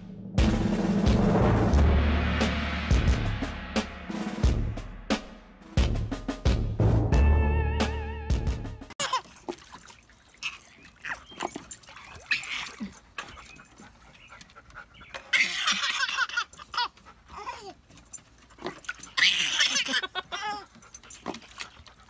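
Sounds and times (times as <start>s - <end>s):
dog whining: 10.4s - 14.4s.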